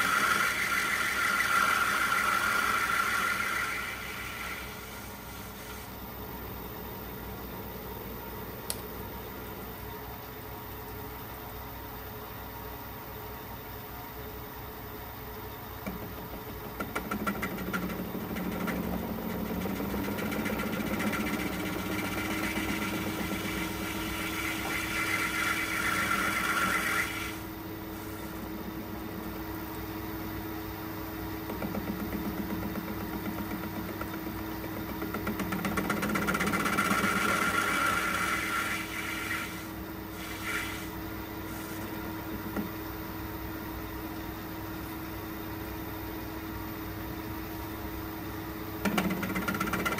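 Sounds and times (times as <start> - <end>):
lathe tool cutting metal: 0.0 - 4.8, 20.1 - 27.4
lathe motor running: 0.0 - 5.2, 15.8 - 27.5, 31.3 - 39.6.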